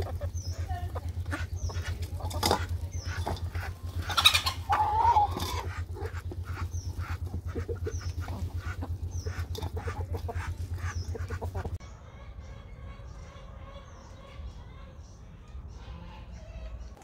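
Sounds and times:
beaks pecking at feed: 0.0s - 11.7s
chicken squawk: 0.0s - 15.0s
chickens clucking: 0.0s - 17.0s
low pulsing hum: 0.0s - 17.0s.

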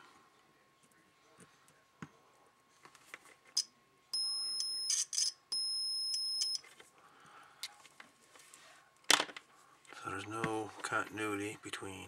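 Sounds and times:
multimeter beeping: 3.6s - 6.7s.

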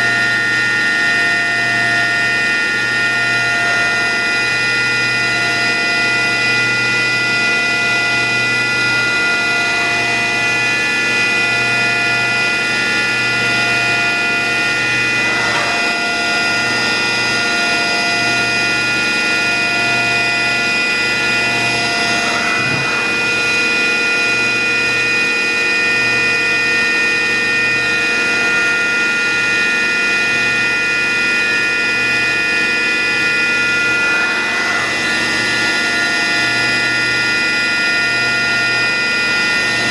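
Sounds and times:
machinery humming: 0.0s - 25.1s
pulsing low throb: 13.5s - 18.0s.

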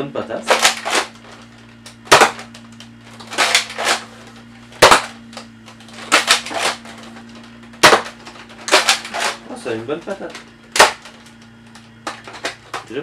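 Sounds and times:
toy blaster shots: 0.5s - 1.2s, 2.1s - 2.5s, 3.3s - 4.0s, 7.8s - 9.4s, 10.7s - 11.1s.

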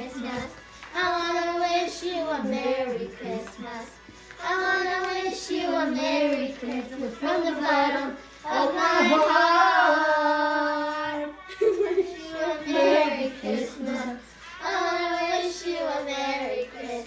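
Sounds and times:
child singing: 0.0s - 17.0s.

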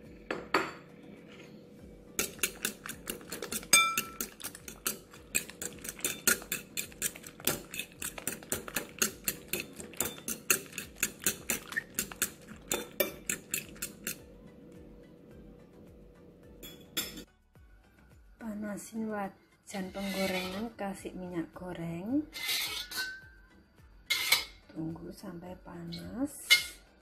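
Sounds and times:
fork clinking against bowl: 2.2s - 14.2s.

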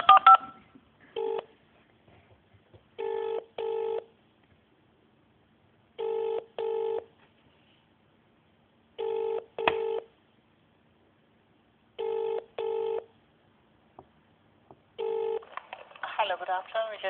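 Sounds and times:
telephone ringing tone: 0.0s - 0.6s, 1.2s - 1.5s, 3.0s - 4.1s, 6.0s - 7.1s, 9.0s - 10.1s, 12.0s - 13.1s, 15.0s - 15.5s.

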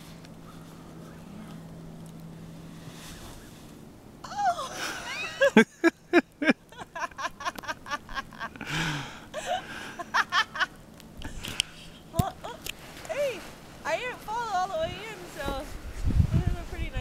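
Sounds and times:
person laughing hard: 4.3s - 10.7s.

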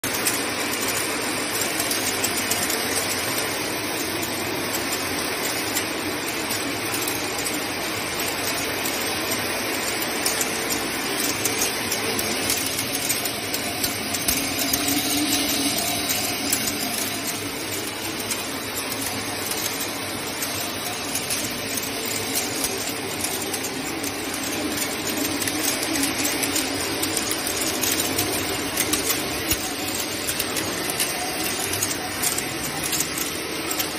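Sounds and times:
machine drive running: 0.0s - 33.9s
water running: 0.0s - 33.9s
stone beads rattling: 10.6s - 33.9s.

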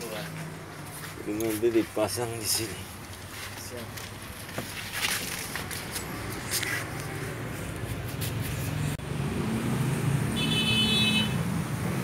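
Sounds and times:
handling clicks and scrapes: 3.2s - 9.0s.

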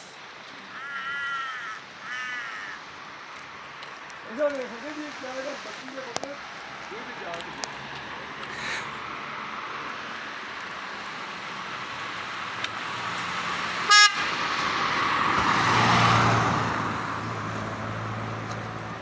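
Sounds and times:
vehicle driving past: 6.5s - 19.0s
vehicle horn toot: 13.9s - 14.3s.

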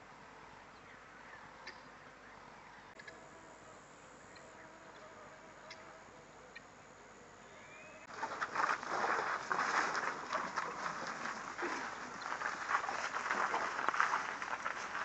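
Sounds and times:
bird chirps: 7.5s - 8.1s
elephants running footfalls: 8.1s - 15.0s.

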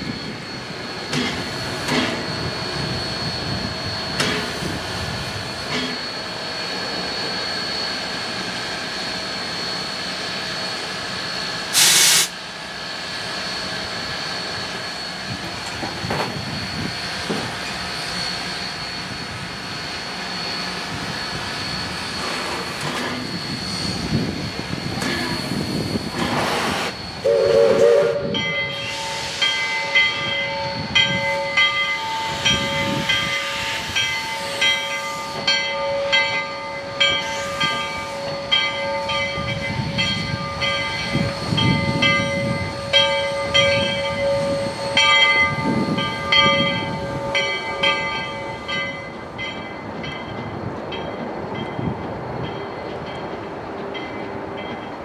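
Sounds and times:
steam exhaust puffs: 11.7s - 12.4s, 21.0s - 29.9s
steam locomotive whistle toot: 11.7s - 12.4s, 26.2s - 36.2s
locomotive bell ringing: 27.0s - 55.0s.

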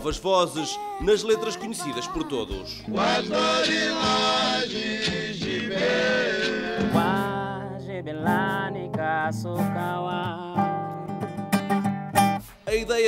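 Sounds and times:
man singing: 0.5s - 10.8s, 12.7s - 13.0s
acoustic guitar plucked notes: 0.8s - 12.9s.

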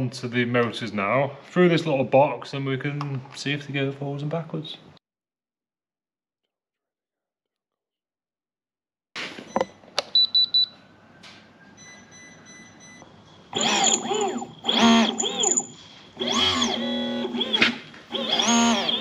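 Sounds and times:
electric motors spinning up: 13.5s - 19.0s
speed controller whine: 13.5s - 19.0s.

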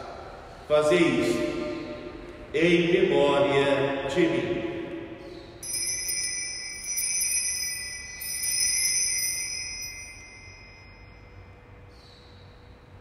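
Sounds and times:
altar bell ringing: 5.6s - 11.7s.

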